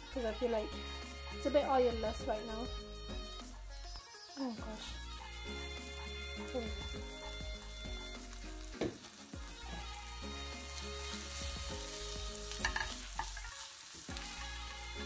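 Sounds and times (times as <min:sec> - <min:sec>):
onions sizzling in oil: 0:00.0 - 0:15.0
spatula scraping a pan: 0:09.0 - 0:15.0.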